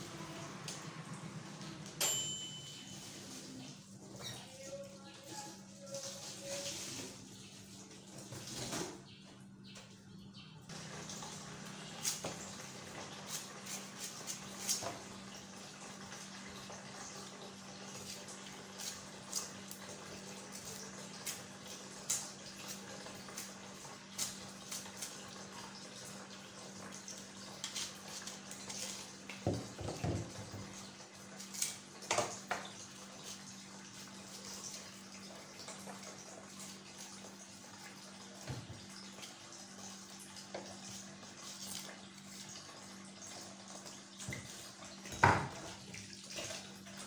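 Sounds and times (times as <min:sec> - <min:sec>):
tap water running into sink: 0:10.7 - 0:47.0.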